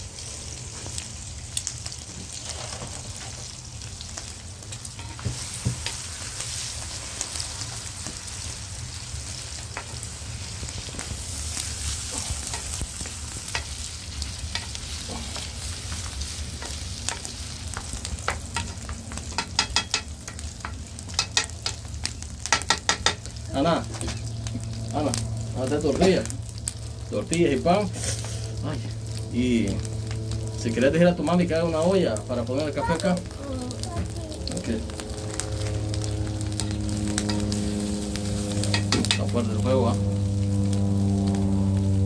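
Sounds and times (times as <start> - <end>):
food sizzling in a pan: 0.0 - 42.0
cooking utensil taps and scrapes: 16.6 - 21.8, 22.5 - 23.3, 38.7 - 39.3.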